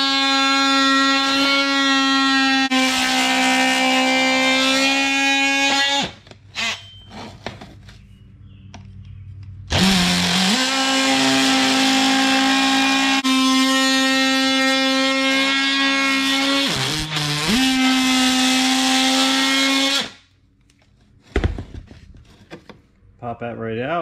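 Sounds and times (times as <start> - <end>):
oscillating multi-tool cutting: 9.7 - 20.2
faint handling sounds: 20.5 - 23.2.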